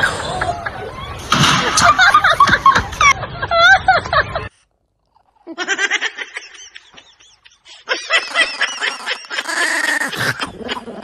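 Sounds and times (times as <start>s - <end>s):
small dog growling and snarling: 8.6s - 11.0s.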